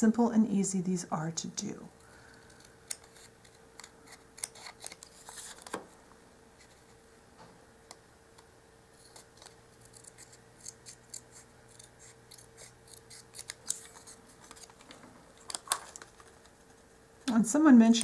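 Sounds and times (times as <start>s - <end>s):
scissors snipping paper: 2.4s - 5.8s, 9.0s - 14.8s.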